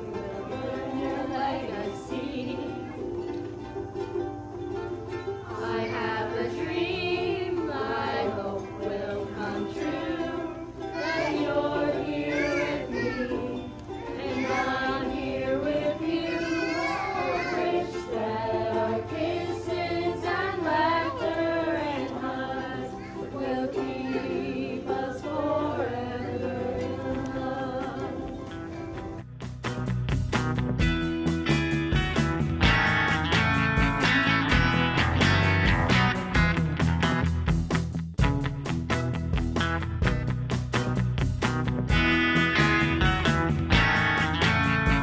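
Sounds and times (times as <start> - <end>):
children and adults singing: 0.0 - 4.1, 4.7 - 29.1
strummed ukuleles: 0.0 - 45.0.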